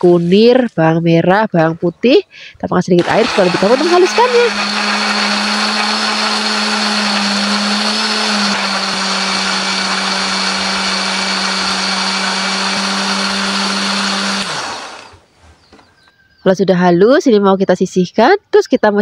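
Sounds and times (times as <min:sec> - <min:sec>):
blender motor running: 0:03.0 - 0:15.2.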